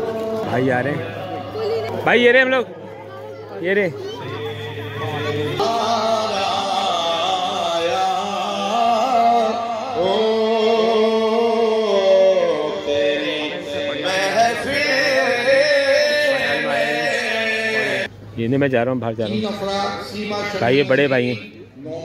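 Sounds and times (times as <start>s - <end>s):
man singing over loudspeakers: 0.0s - 2.2s, 4.0s - 18.1s, 19.2s - 22.0s.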